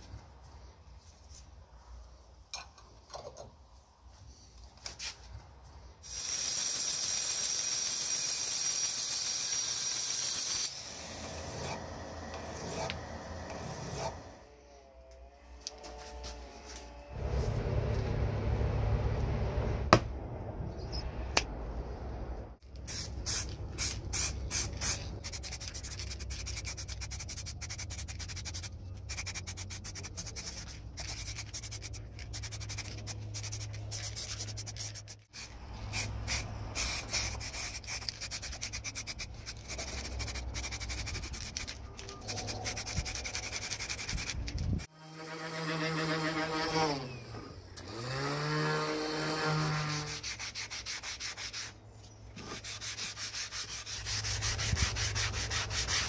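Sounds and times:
spray paint can hissing: 0:06.0 - 0:10.8, 0:22.7 - 0:44.9, 0:52.6 - 0:56.0.

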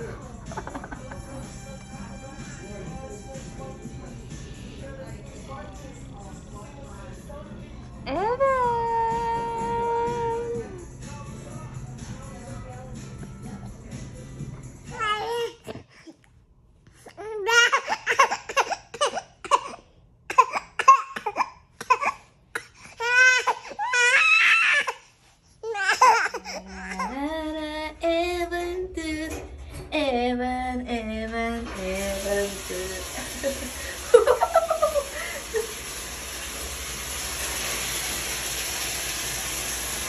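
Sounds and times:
baby laughing: 0:17.2 - 0:22.2, 0:25.6 - 0:27.2
baby vocalising: 0:25.6 - 0:27.3.

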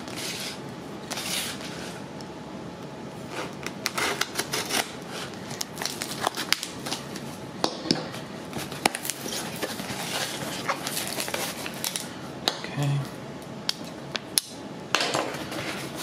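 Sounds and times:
knife slitting packing tape: 0:03.8 - 0:06.8.

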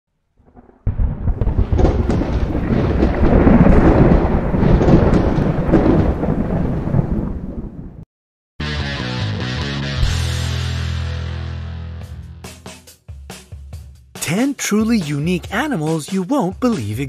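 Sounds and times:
rolling thunder with crackles: 0:00.4 - 0:08.0.

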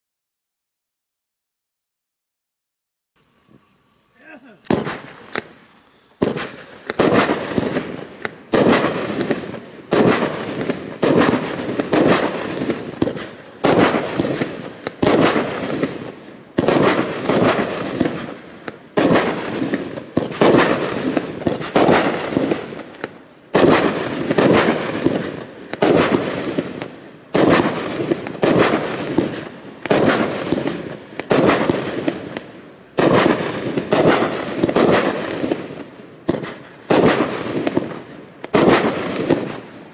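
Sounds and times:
firework shots banging: 0:04.3 - 0:39.9.

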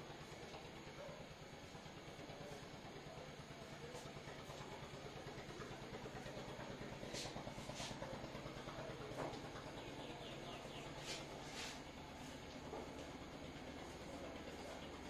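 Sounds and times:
low background hum: 0:00.0 - 0:15.0
chalk scratching on a blackboard: 0:07.1 - 0:08.0, 0:11.0 - 0:11.8.

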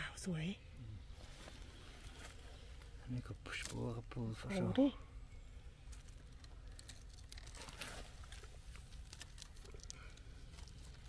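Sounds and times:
leaves and twigs rustling: 0:01.1 - 0:11.0
small clicks and snaps: 0:05.9 - 0:11.0.

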